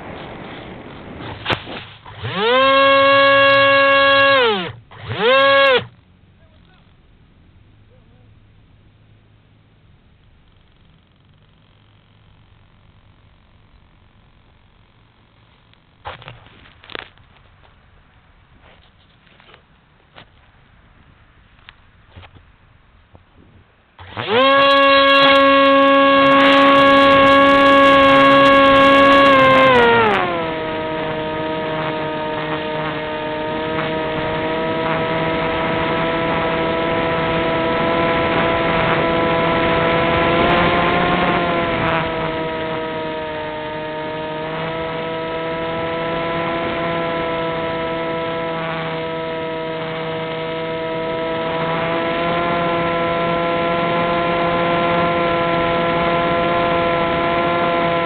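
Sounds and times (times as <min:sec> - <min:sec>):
model plane motor spinning: 0:01.4 - 0:06.8, 0:24.0 - 0:58.0.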